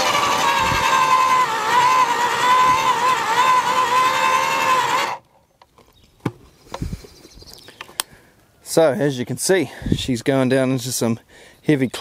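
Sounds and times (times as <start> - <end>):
auger motor whining: 0.0 - 5.2.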